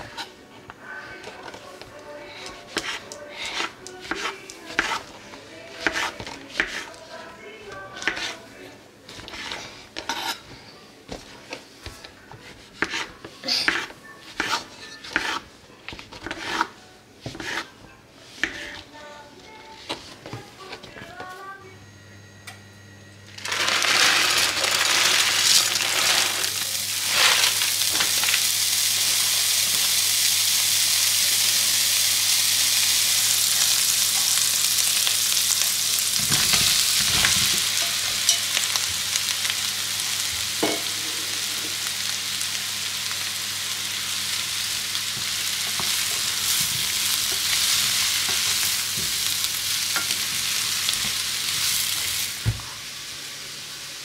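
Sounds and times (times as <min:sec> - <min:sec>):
fat sizzling in frying pan: 0:23.3 - 0:54.0.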